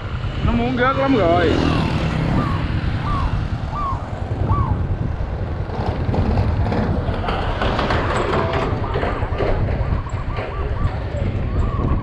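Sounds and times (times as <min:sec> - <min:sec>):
wind noise on microphone: 0:00.0 - 0:12.0
rising-and-falling chirps: 0:01.7 - 0:04.8.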